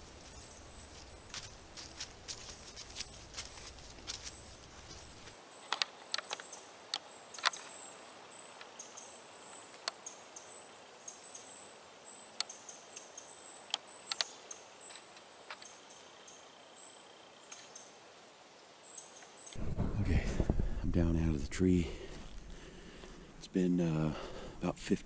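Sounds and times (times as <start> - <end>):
deer steps on dry leaves: 0.0 - 5.4.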